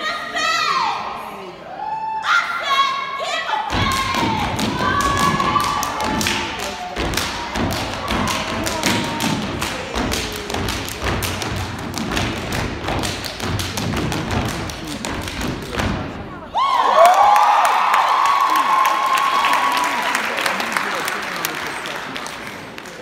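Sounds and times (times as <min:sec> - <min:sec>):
hand claps: 0:03.8 - 0:16.0
audience whooping and cheering: 0:16.5 - 0:20.7.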